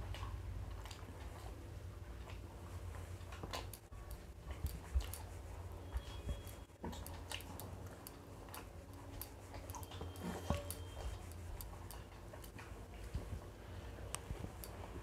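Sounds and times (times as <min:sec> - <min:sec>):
chewing: 0:00.0 - 0:13.4
low steady hum: 0:00.0 - 0:15.0
fingers working rice on glass plates: 0:04.2 - 0:12.6.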